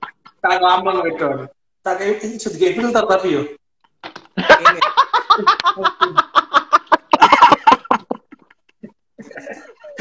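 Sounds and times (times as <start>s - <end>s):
hearty laughter: 4.4s - 10.0s.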